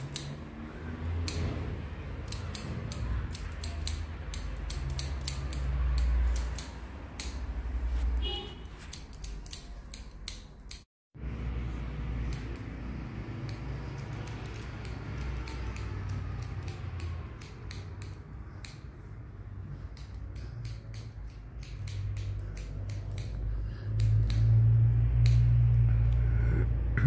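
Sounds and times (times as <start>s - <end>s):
shears snipping hair: 0.0s - 26.3s
low hum: 23.4s - 27.0s.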